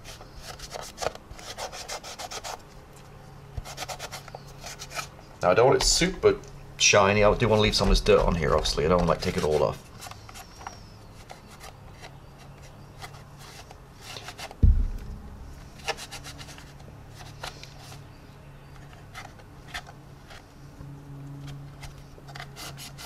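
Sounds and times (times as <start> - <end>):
paper towel wiping plastic: 7.4 - 9.8
scratchy ticks from handling plastic: 7.6 - 14.3
dull thump: 14.6 - 16.4.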